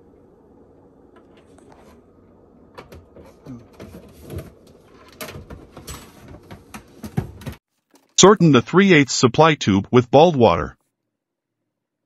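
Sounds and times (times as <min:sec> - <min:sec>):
steady low hum: 0:00.0 - 0:04.7
plastic scraping and knocking: 0:02.8 - 0:08.2.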